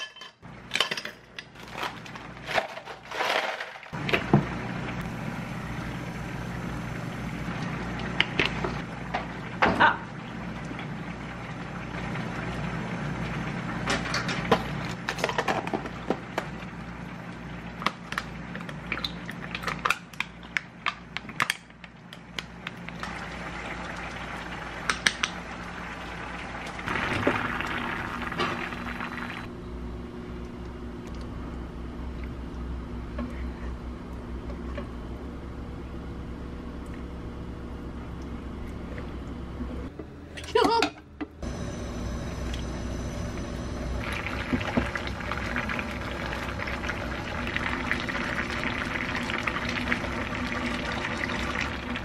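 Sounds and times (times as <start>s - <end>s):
steady low hum: 4.0s - 14.0s, 26.6s - 40.4s, 41.0s - 52.0s.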